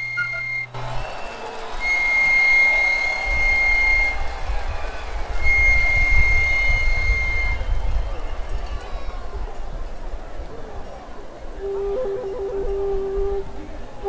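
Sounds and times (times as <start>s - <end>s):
high-pitched whistle blasts: 0.0s - 4.7s, 5.3s - 8.0s
low rumbling noise: 0.0s - 14.0s.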